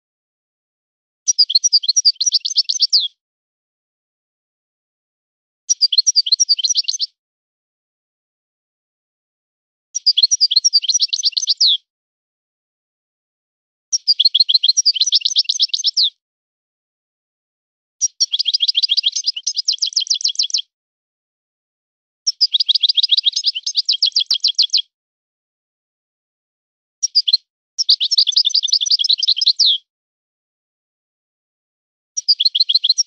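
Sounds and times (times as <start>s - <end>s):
finch twittering song: 1.3s - 3.2s, 5.7s - 7.2s, 10.0s - 11.8s, 13.9s - 16.2s, 18.0s - 20.7s, 22.3s - 24.9s, 27.0s - 29.9s, 32.2s - 33.0s.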